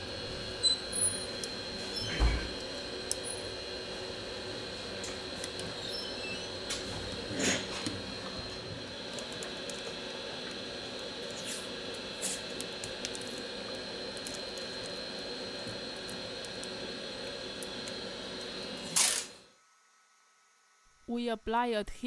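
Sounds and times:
steady background hum and hiss: 0:00.0 - 0:22.0.

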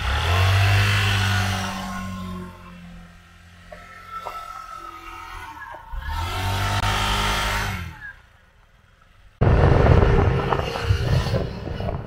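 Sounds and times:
wind buffeting microphone: 0:09.4 - 0:12.0.

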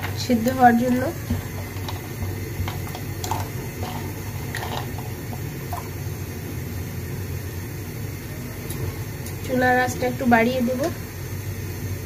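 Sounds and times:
stove burner rumble: 0:00.0 - 0:12.0.

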